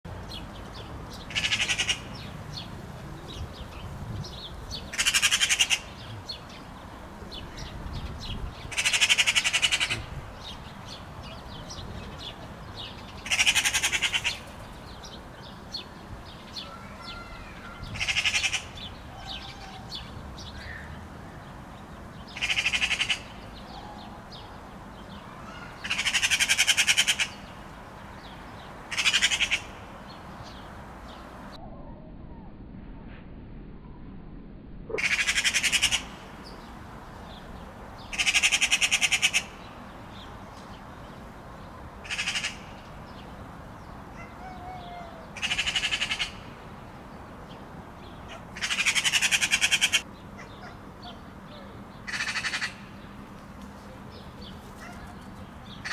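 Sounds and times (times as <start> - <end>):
magpie chattering: 8.7 - 10.1, 13.2 - 14.4, 22.4 - 23.3, 25.8 - 27.4, 28.9 - 29.7, 35.0 - 36.1, 38.1 - 39.6, 45.4 - 46.4, 48.3 - 50.5, 52.1 - 52.8.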